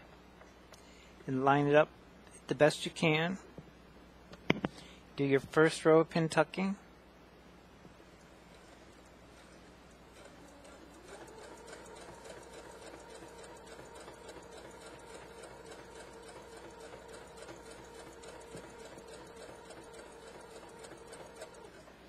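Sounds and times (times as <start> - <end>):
sewing machine motor humming: 8.5 - 22.0
sewing needle ticking rapidly: 10.2 - 21.8.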